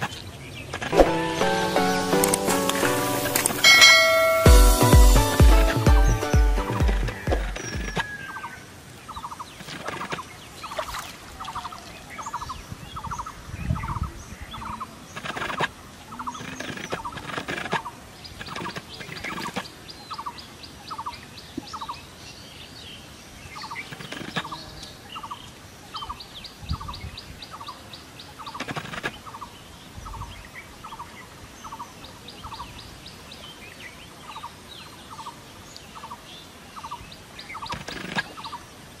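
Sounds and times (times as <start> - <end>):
high-pitched ticking trill: 1.3 - 7.6.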